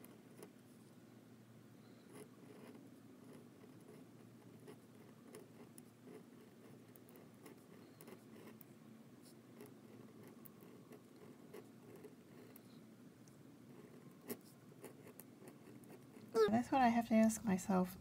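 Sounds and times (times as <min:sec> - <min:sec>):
pen nib scratching paper: 0:02.1 - 0:08.6, 0:09.2 - 0:12.7, 0:13.7 - 0:16.2.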